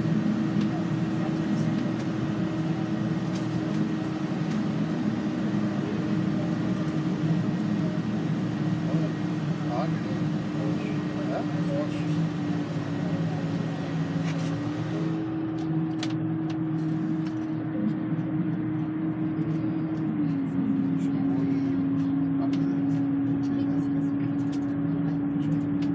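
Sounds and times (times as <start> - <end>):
bus engine drone: 0.0 - 25.9
road noise: 0.0 - 25.9.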